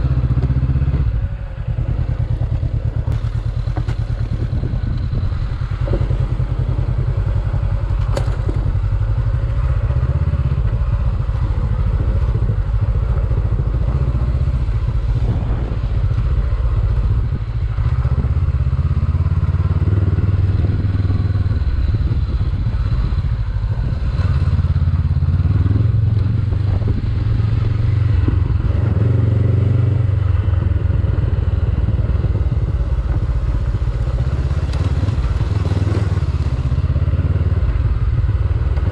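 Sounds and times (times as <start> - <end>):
motorcycle engine under load: 0.0 - 38.9
knocks and clatter from bike: 3.0 - 4.6, 7.8 - 8.9.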